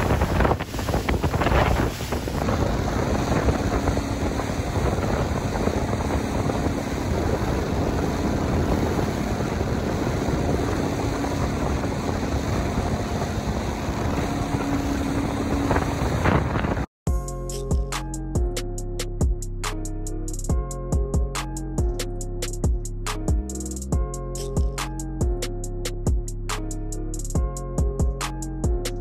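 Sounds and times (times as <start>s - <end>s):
boat engine droning: 0.0s - 16.9s
water rushing past hull: 0.0s - 16.9s
wind buffeting microphone: 0.0s - 16.9s.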